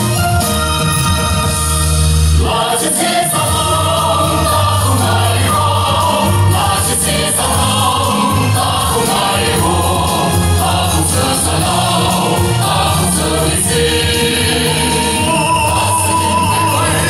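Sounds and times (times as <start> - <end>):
amplified band accompaniment: 0.0 - 17.0
mixed choir singing: 2.4 - 17.0
man singing solo: 14.8 - 17.0.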